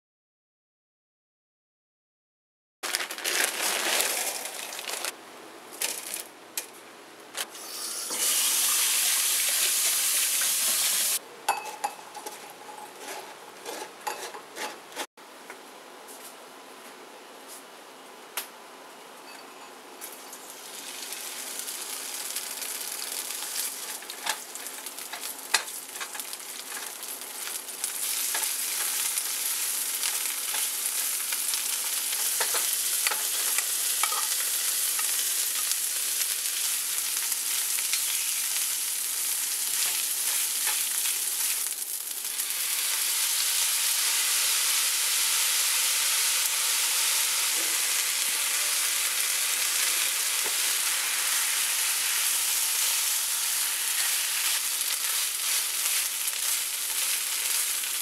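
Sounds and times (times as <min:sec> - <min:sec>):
food sizzling in oil: 0:07.6 - 0:11.2, 0:20.2 - 0:58.0
spatula stirring and scraping: 0:12.2 - 0:15.1, 0:53.9 - 0:58.0.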